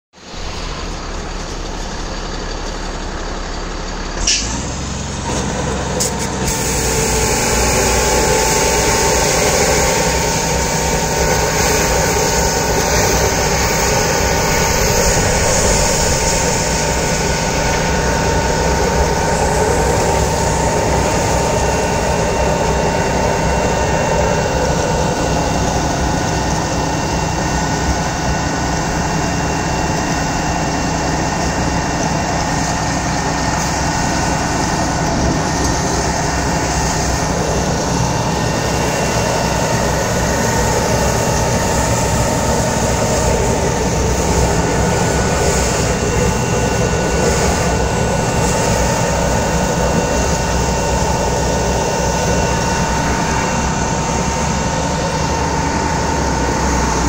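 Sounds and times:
engine and pump running: 0:00.1 - 0:57.0
sharp click: 0:04.2 - 0:04.6
water rushing through pipe: 0:04.2 - 0:57.0.

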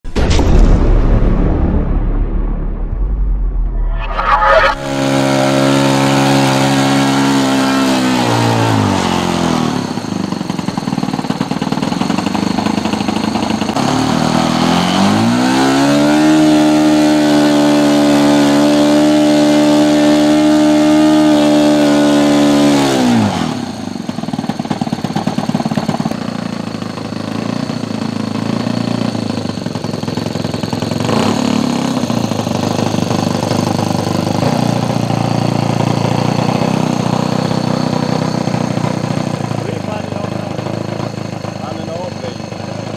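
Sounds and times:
model aircraft engine running: 0:06.6 - 0:15.3, 0:23.0 - 0:42.9.

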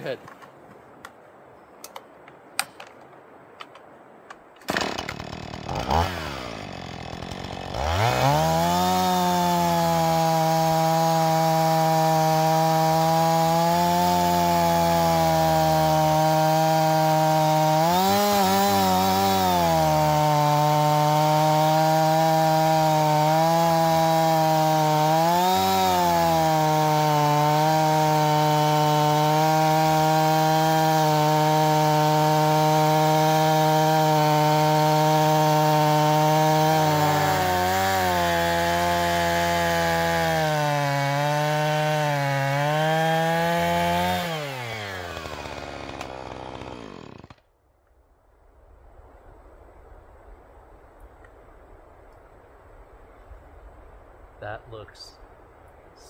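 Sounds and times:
chainsaw cutting log: 0:04.6 - 0:47.4.

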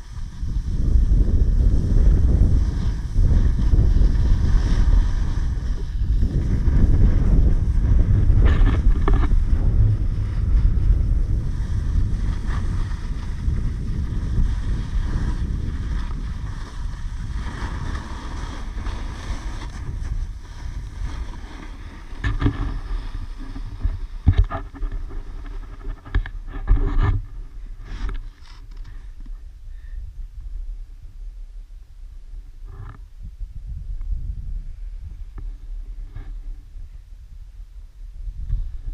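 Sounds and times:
wind buffeting microphone: 0:00.0 - 0:28.2, 0:32.4 - 0:38.9
scrapes and knocks in snow: 0:00.0 - 0:29.1
snowboard sliding over snow: 0:00.0 - 0:29.2.

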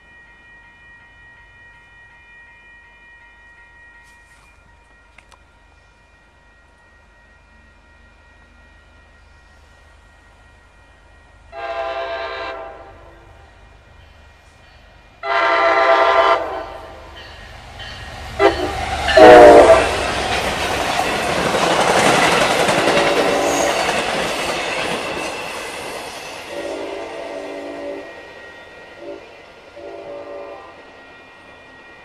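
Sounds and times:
train passing with wheel noise: 0:00.0 - 0:32.0
locomotive horn blasts: 0:11.5 - 0:13.2, 0:15.2 - 0:17.1, 0:18.4 - 0:20.1, 0:26.5 - 0:28.1, 0:29.0 - 0:30.8.

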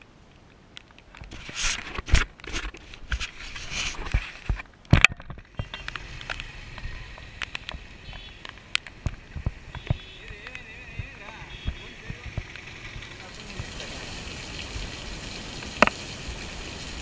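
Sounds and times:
camera rustling against jacket: 0:01.0 - 0:12.6.

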